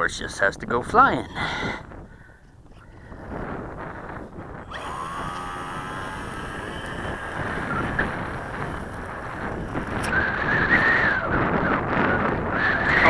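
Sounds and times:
wind buffeting microphone: 0.0s - 13.0s
electric motor and propeller whine: 3.4s - 13.0s.

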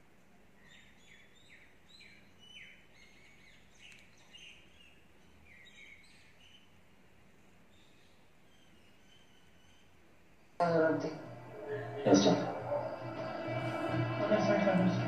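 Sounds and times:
bird chirping: 0.6s - 7.0s, 7.6s - 14.2s
low steady hum: 10.4s - 15.0s.

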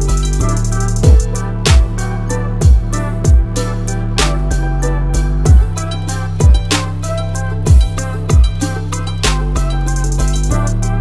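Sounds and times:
background music with beat: 0.0s - 11.0s
deep thumps: 1.0s - 2.0s, 2.6s - 3.6s, 5.5s - 7.0s, 7.7s - 9.4s.

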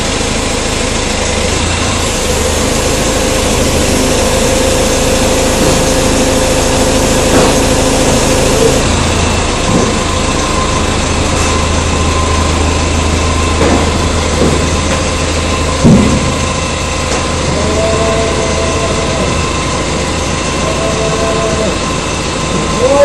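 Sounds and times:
forklift engine running: 0.0s - 23.0s
two-note tone: 2.1s - 9.0s
loud knock: 15.8s - 16.4s.

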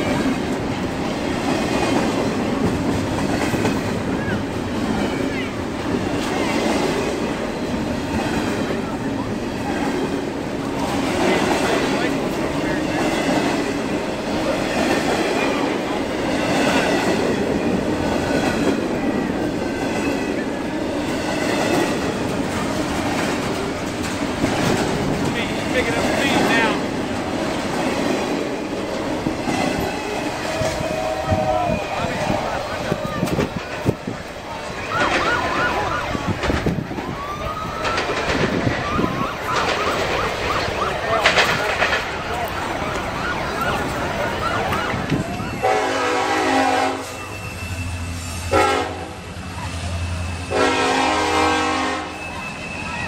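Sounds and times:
crowd chatter: 0.0s - 53.0s
freight train wheels clattering: 0.0s - 53.0s
emergency siren wailing: 29.8s - 33.5s, 34.4s - 47.7s.

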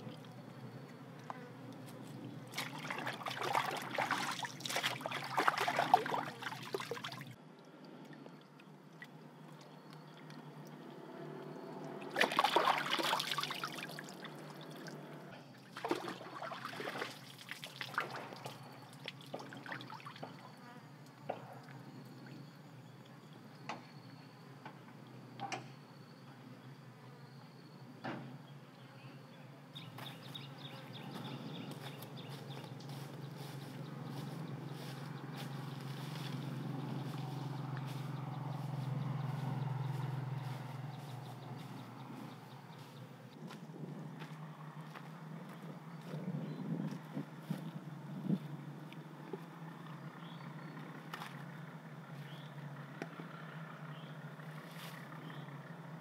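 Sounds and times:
stream water splashing: 2.5s - 7.4s, 11.9s - 20.4s
high insect drone: 9.4s - 48.5s.

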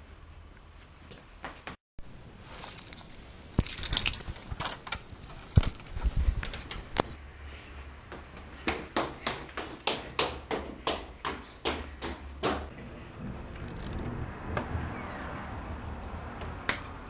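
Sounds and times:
keys jangling: 2.0s - 7.2s.

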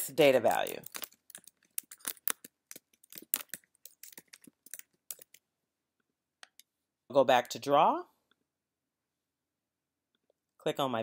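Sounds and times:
typing on computer keyboard: 0.6s - 5.4s.

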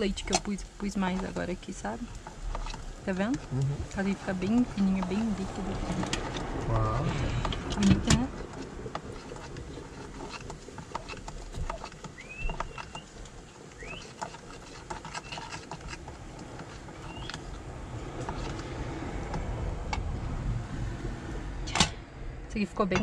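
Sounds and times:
utensil stirring batter: 0.0s - 6.4s, 7.6s - 19.4s
low steady rumble: 0.0s - 14.0s, 15.8s - 23.0s.

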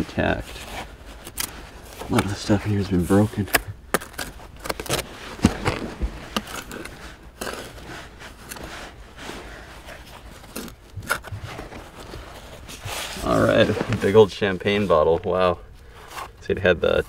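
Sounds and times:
hand trowel scraping dirt: 0.0s - 15.0s
soil crumbling: 1.2s - 14.3s.

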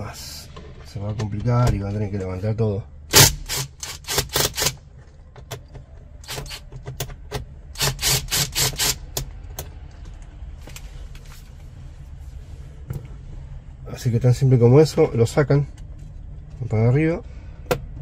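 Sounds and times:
screws clicking and rattling: 3.1s - 4.8s, 6.2s - 6.8s, 7.8s - 9.3s
cordless drill-driver: 3.2s - 4.8s, 6.3s - 6.6s, 7.8s - 9.0s.

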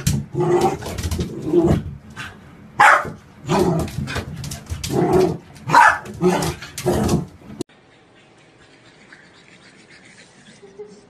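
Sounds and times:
puppy barking: 2.8s - 3.2s, 5.7s - 6.5s.

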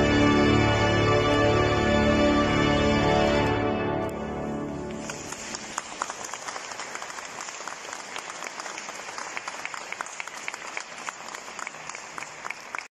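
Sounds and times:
audience applauding: 4.8s - 12.9s.

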